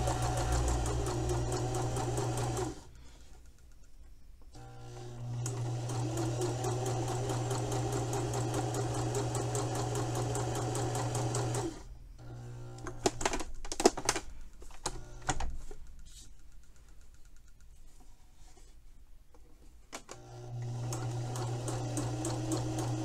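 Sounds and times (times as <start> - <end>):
sewing machine stitching: 0.0 - 2.9, 4.6 - 11.9, 20.1 - 23.0.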